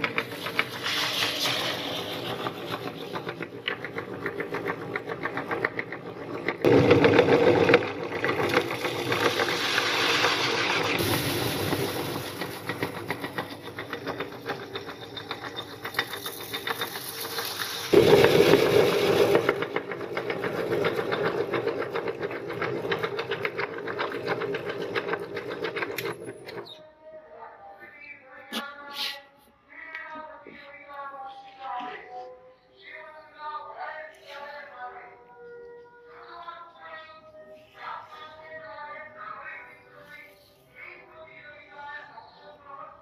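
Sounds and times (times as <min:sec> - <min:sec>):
meat grinder crushing puffed rice: 0:00.0 - 0:26.2.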